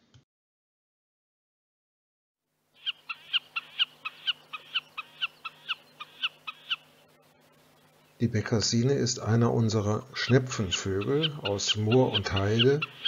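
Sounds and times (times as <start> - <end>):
bird calling in sharp notes: 2.8 - 8.2, 10.2 - 13.0.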